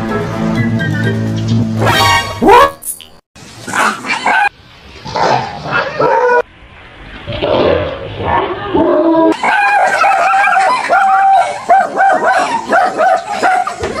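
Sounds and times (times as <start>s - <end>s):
dog barking and yapping: 3.7s - 4.5s, 9.3s - 14.0s.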